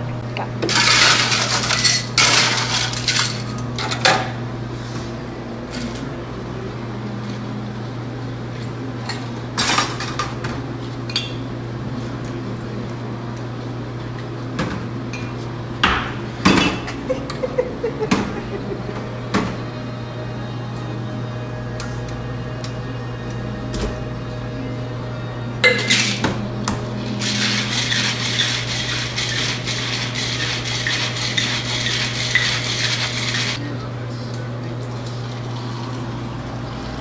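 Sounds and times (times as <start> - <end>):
steady low hum: 0.0 - 30.8
glassware and ice clinking: 25.6 - 26.2.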